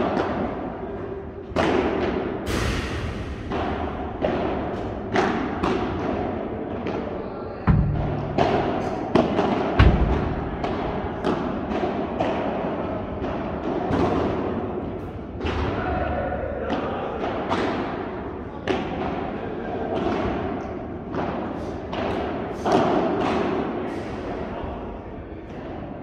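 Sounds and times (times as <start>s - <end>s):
balls knocked by rackets: 1.4s - 15.8s.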